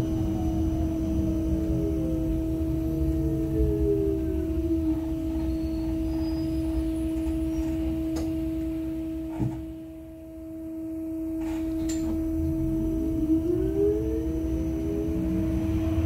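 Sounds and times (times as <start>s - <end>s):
electric drive whine: 0.0s - 16.0s
low running rumble: 0.0s - 16.0s.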